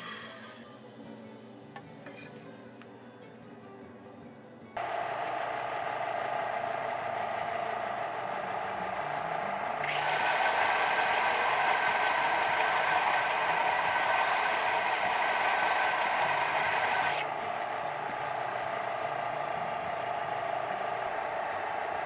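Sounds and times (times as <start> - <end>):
belt sander running: 4.8 - 22.0
wood being sanded: 9.8 - 17.3.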